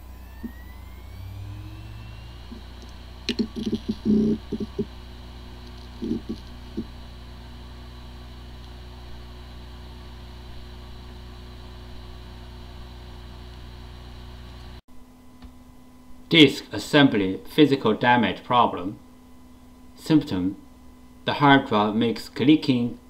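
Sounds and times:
hard drive spindle hum: 0.0s - 23.0s
hard drive ticks and rattles: 2.4s - 9.3s.

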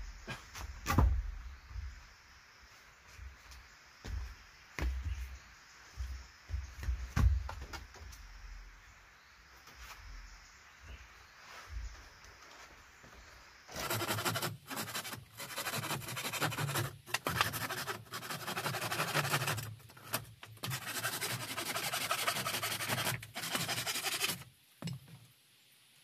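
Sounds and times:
hand tool scraping wood: 13.7s - 24.5s.

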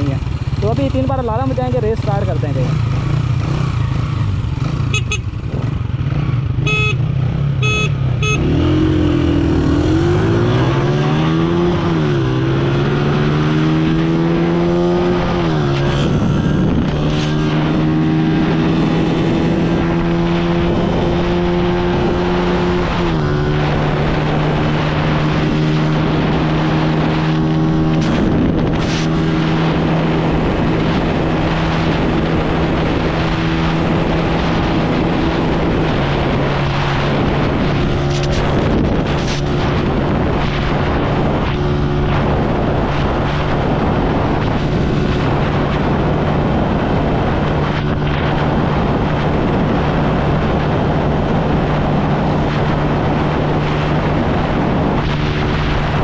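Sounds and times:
motorcycle engine accelerating: 0.0s - 56.0s
short high beeps: 6.6s - 7.0s, 7.6s - 8.6s.

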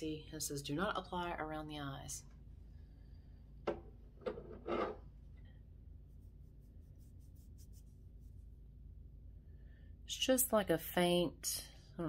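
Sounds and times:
fingertip rubbing skin: 6.0s - 8.6s.

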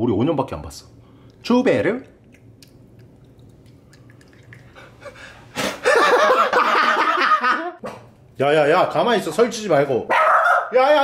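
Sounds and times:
person laughing loudly: 5.0s - 7.8s.

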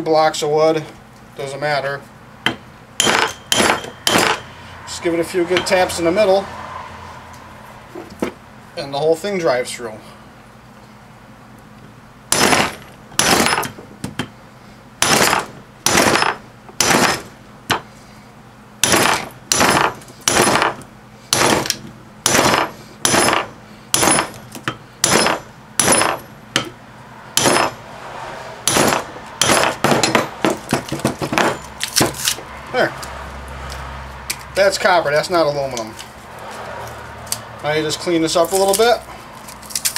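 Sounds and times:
hammer striking metal punch: 2.4s - 4.5s, 5.5s - 5.8s, 12.3s - 14.3s, 15.0s - 17.8s, 18.8s - 26.8s, 27.4s - 27.8s, 28.6s - 32.2s.

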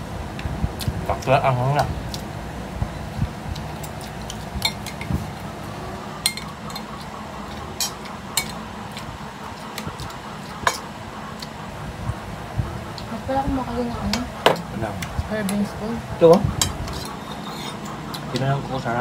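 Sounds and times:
cutlery clinking on plates: 6.2s - 7.0s, 7.8s - 8.6s, 10.6s - 10.9s, 16.6s - 18.2s.

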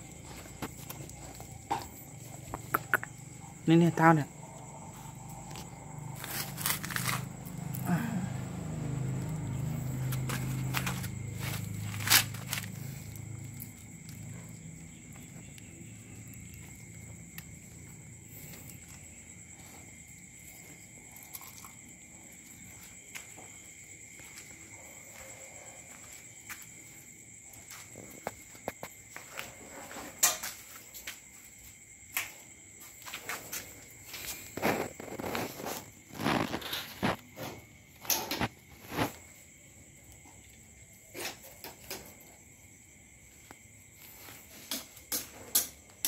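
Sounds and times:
footsteps on dirt ground: 0.0s - 2.7s, 9.2s - 14.0s, 22.5s - 29.6s.

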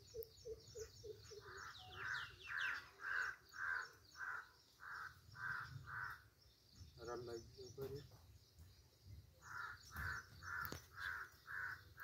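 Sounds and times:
high falling bird chirps: 0.0s - 12.0s
crow cawing: 1.4s - 6.3s, 9.4s - 12.0s.

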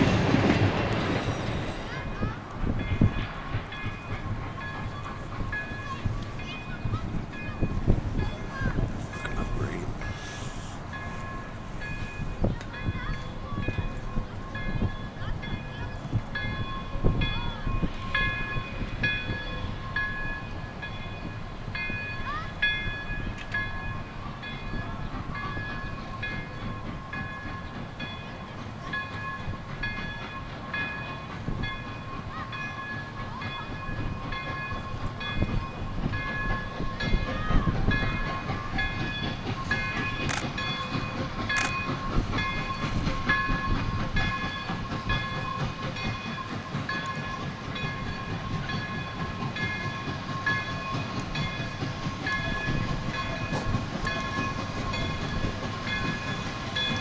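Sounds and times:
locomotive bell ringing: 0.0s - 57.0s
steam locomotive rumble: 0.0s - 57.0s
sharp clicks: 40.2s - 40.6s.

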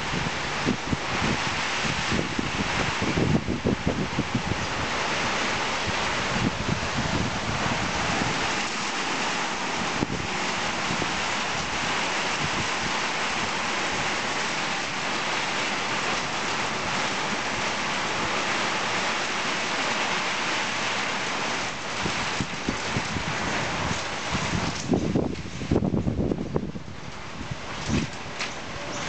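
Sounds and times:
heavy rain pouring: 0.0s - 29.0s.

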